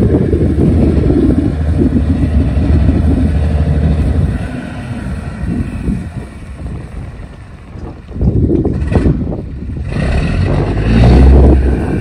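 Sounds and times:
boat diesel engine droning: 0:00.0 - 0:12.0.

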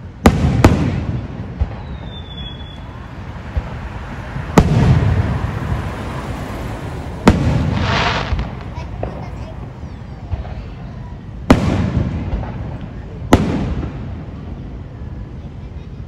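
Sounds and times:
fireworks bursting with loud bangs: 0:00.0 - 0:15.6
faint firework pops: 0:00.2 - 0:02.8, 0:04.6 - 0:05.2, 0:07.2 - 0:09.6, 0:10.2 - 0:10.8, 0:11.5 - 0:14.2.

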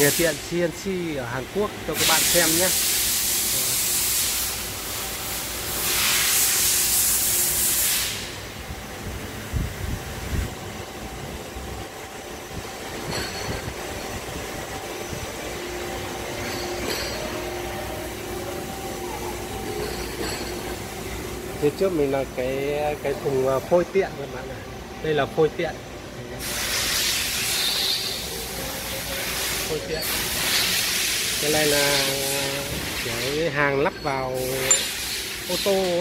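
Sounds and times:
loud hissing: 0:00.0 - 0:08.5, 0:26.4 - 0:36.0
lathes humming: 0:10.2 - 0:36.0.

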